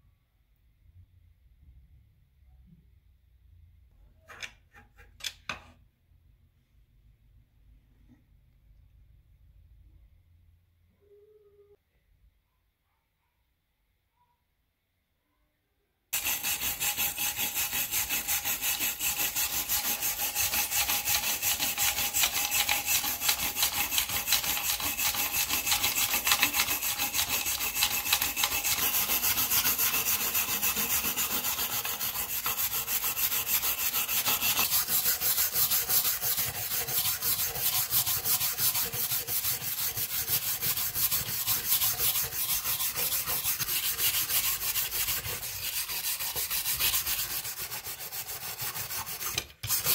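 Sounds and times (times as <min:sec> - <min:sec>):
wire brush scrubbing metal: 0:16.2 - 0:49.9.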